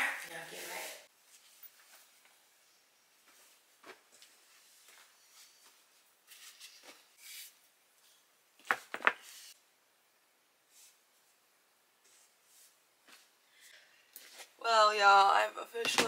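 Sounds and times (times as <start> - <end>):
clothes rustling: 0.3 - 2.4, 3.2 - 7.6, 12.0 - 14.6.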